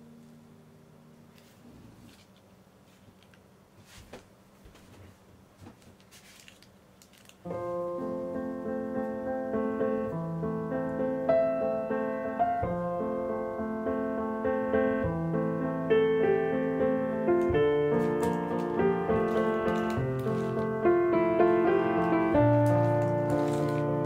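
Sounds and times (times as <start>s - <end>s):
piano music: 7.5s - 24.0s.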